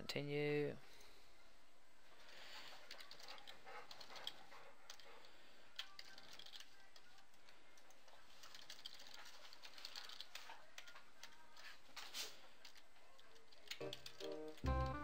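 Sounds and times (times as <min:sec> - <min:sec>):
computer keyboard typing: 0:05.8 - 0:11.5, 0:12.6 - 0:15.0.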